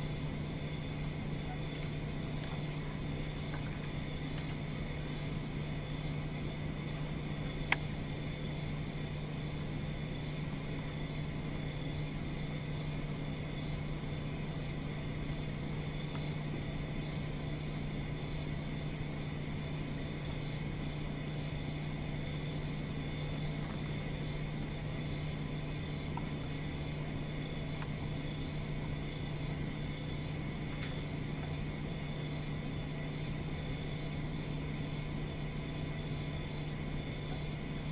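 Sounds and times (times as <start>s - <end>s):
faint steady whine: 0.0s - 37.9s
low background hum: 0.0s - 37.9s.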